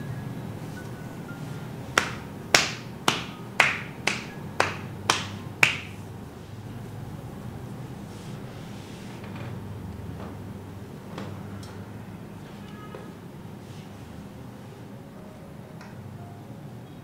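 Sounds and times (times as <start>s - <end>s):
hand slaps: 2.0s - 6.0s.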